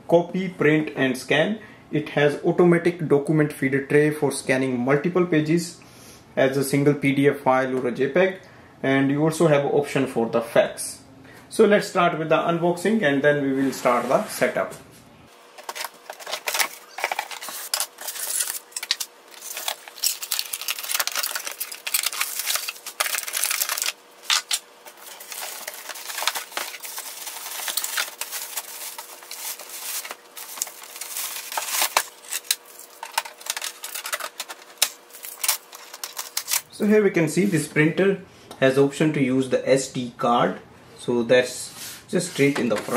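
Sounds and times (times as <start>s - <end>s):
packing materials rustling: 15.4s - 36.7s.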